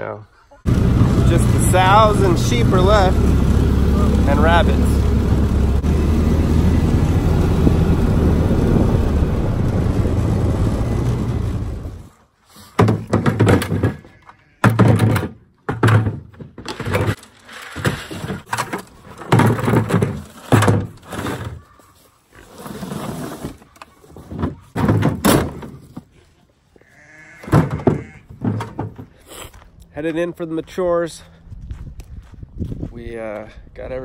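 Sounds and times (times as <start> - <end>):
utility vehicle engine running: 0.7 - 12.1
plastic buckets thunking together: 12.8 - 21.6, 23.4 - 26.1, 27.4 - 29.2.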